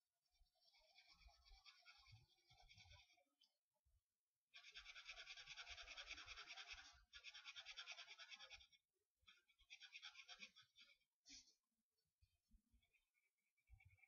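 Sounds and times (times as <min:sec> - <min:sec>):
marker scratching on paper: 0:00.6 - 0:03.2, 0:04.6 - 0:11.6.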